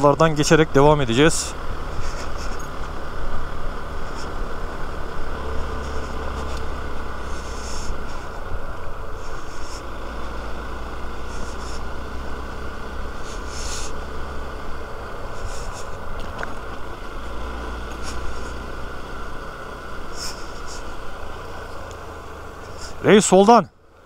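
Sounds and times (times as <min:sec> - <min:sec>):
heavy low rumble: 0:00.0 - 0:23.1
motorcycle engine running: 0:00.0 - 0:24.0
short high hisses: 0:13.2 - 0:14.0.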